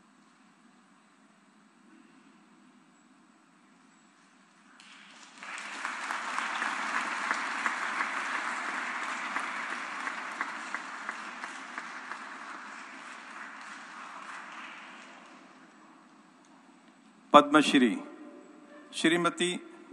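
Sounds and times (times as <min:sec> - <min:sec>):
audience applauding: 0:04.7 - 0:15.9.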